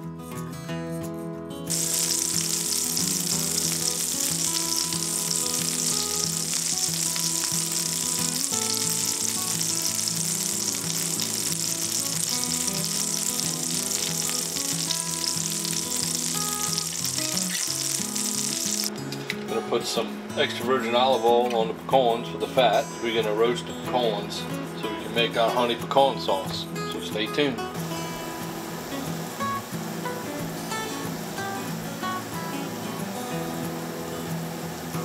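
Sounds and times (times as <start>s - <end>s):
butter sizzling in a frying pan: 1.7s - 18.9s.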